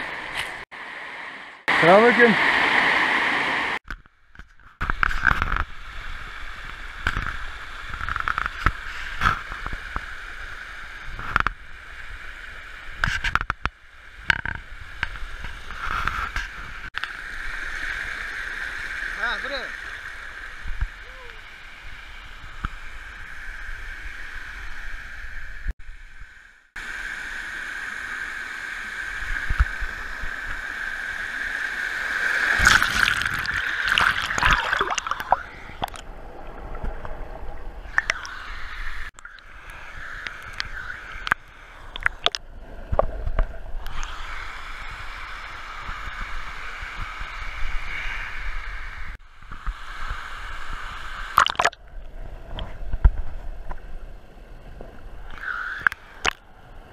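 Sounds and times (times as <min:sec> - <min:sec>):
rush of small cascades: 0:01.7 - 0:03.8.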